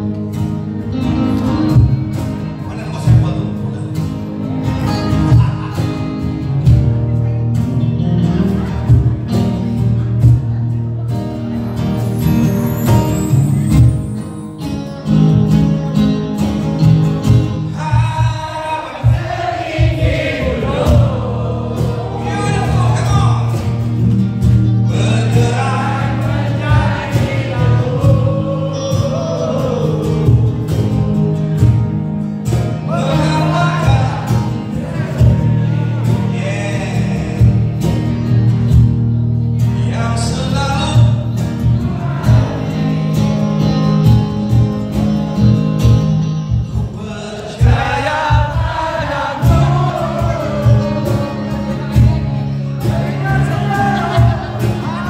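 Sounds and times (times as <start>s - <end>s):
live band playing: 0.0s - 55.0s
man singing: 17.7s - 23.6s, 24.8s - 31.5s, 32.8s - 37.8s, 39.6s - 43.4s, 46.7s - 55.0s
drum and bass beat: 19.1s - 22.1s.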